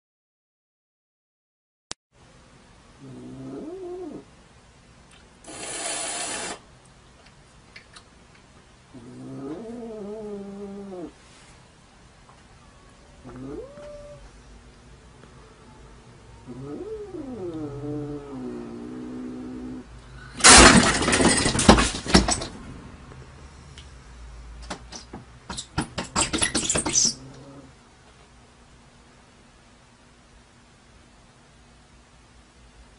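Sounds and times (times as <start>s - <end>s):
cat meowing: 13.2s - 14.3s
sharp clicks and knocks: 24.6s - 27.1s.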